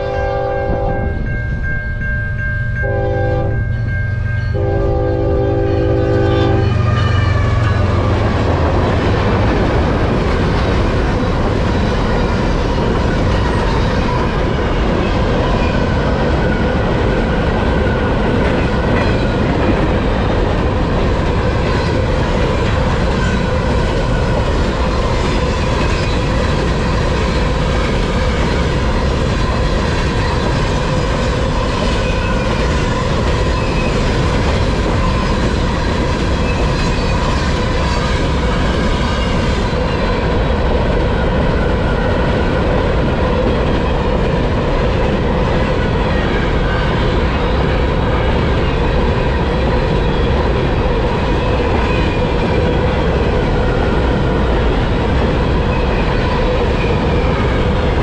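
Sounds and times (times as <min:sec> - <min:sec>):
train horn blasts: 0:00.0 - 0:01.4, 0:02.8 - 0:03.7, 0:04.5 - 0:08.2
locomotive rumble: 0:00.0 - 0:58.0.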